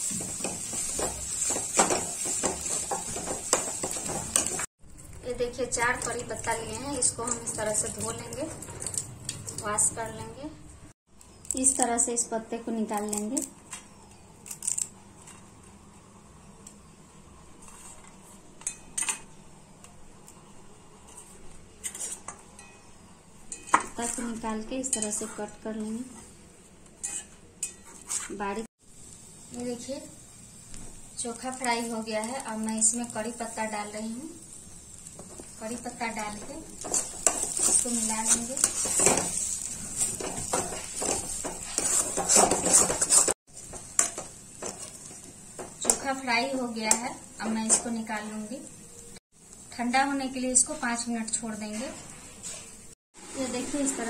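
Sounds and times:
leaves scraping on steel plate: 0:21.1 - 0:22.3, 0:36.3 - 0:45.3.

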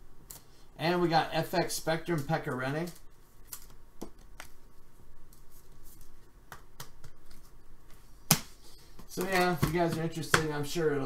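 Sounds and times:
cards and packaging rustling: 0:02.0 - 0:04.6.

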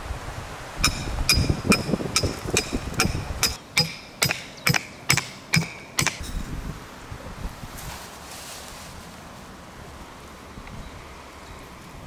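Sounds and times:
hammer striking metal rod: 0:00.8 - 0:06.4.

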